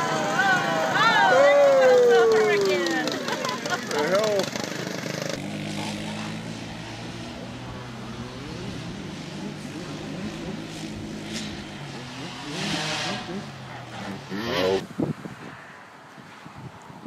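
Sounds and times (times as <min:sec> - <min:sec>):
quad bike engine running: 0:00.0 - 0:14.8.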